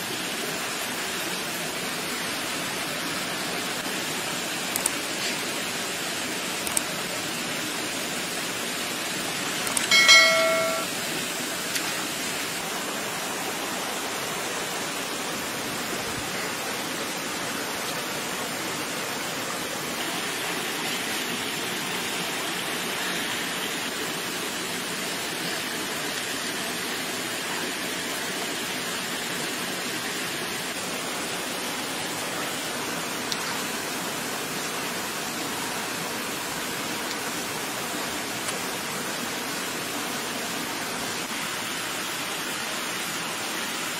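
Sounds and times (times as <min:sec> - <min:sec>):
steady rushing hiss: 0:00.0 - 0:43.9
bell-like chime: 0:09.8 - 0:11.0.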